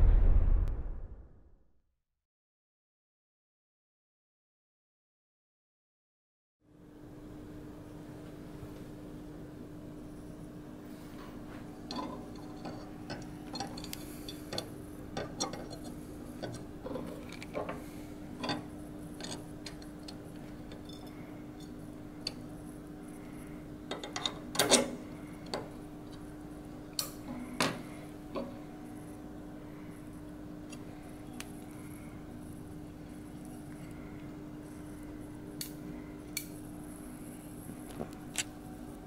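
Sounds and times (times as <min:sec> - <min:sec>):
low hum: 0:00.0 - 0:01.6.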